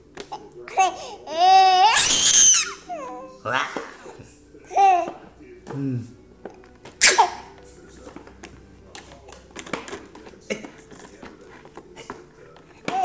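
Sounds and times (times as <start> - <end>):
baby squealing: 0.7 - 5.2, 7.0 - 7.5
hands slapping plastic toy: 8.0 - 13.0.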